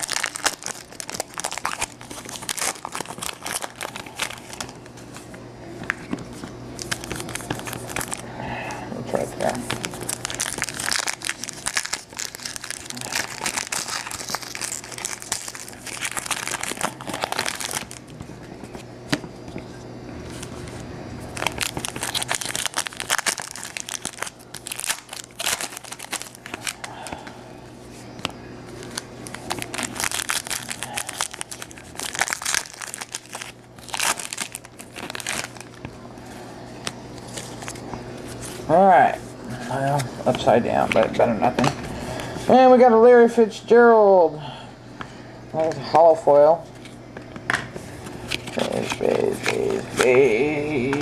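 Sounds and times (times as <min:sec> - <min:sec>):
foil wrappers crinkling and tearing: 0:00.0 - 0:05.2, 0:06.0 - 0:08.2, 0:09.1 - 0:18.8, 0:20.3 - 0:27.4, 0:28.7 - 0:38.6, 0:48.0 - 0:51.0
cards being handled: 0:00.0 - 0:08.2, 0:47.5 - 0:51.0
low steady hum: 0:00.0 - 0:51.0.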